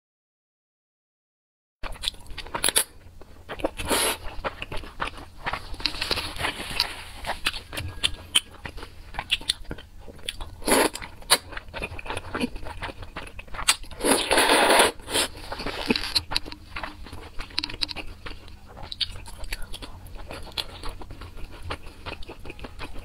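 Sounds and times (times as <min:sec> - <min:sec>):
wet chewing and smacking: 0:01.8 - 0:23.0
noodle slurp: 0:14.0 - 0:16.0.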